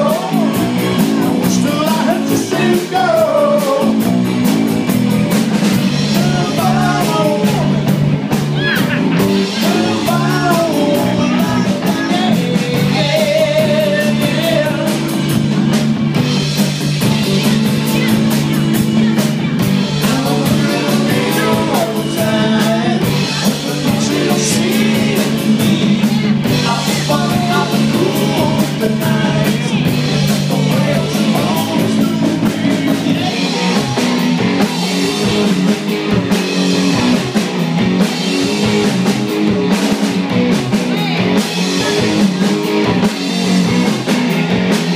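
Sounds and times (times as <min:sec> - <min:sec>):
person singing: 0:00.0 - 0:04.3, 0:05.9 - 0:15.4, 0:17.0 - 0:36.2, 0:40.9 - 0:42.9
drum kit: 0:00.0 - 0:44.9
electric guitar: 0:00.0 - 0:44.9.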